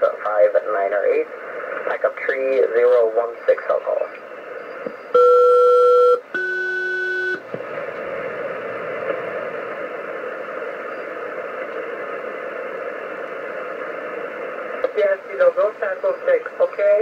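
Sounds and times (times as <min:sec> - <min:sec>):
radio static hiss: 0:00.0 - 0:05.2, 0:06.3 - 0:17.0
two-tone radio call: 0:14.8 - 0:17.0.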